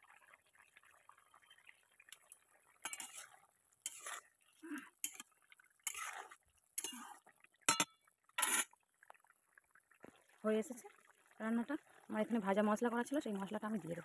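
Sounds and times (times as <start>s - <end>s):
metal spatula scraping curry: 2.8s - 4.3s, 5.0s - 7.2s, 8.4s - 8.7s.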